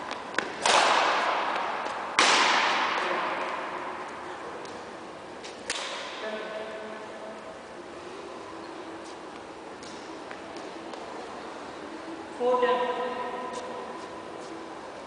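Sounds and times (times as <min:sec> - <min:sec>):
racket hitting shuttlecock with echo: 0:00.3 - 0:03.9, 0:05.4 - 0:06.2.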